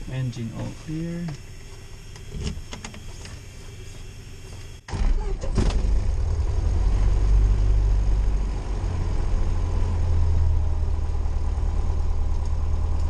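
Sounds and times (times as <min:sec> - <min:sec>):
plane engine idling: 0:00.0 - 0:04.8.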